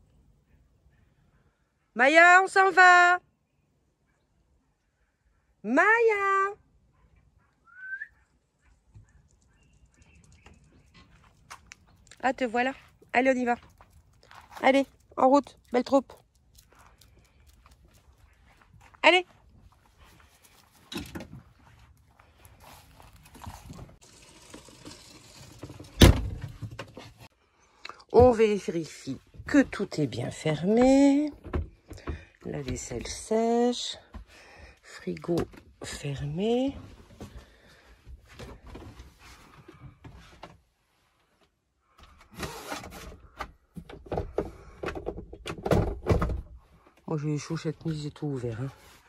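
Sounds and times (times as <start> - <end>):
faint footsteps: 10.6 - 24.0
shuffling: 16.4 - 24.0
doors and latches clattering shut: 25.7 - 27.0, 44.0 - 46.5.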